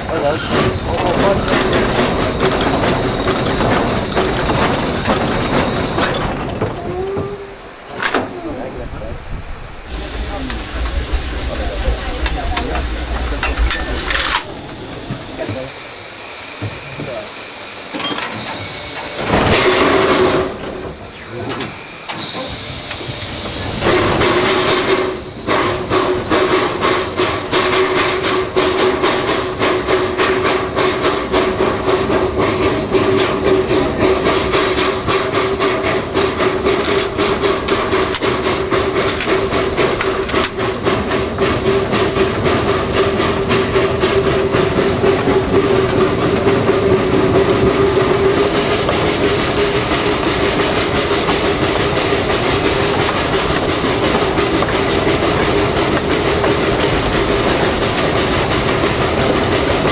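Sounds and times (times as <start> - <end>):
steam locomotive chuffing: 0.0 - 59.9
wheels clattering on rails: 0.0 - 59.9.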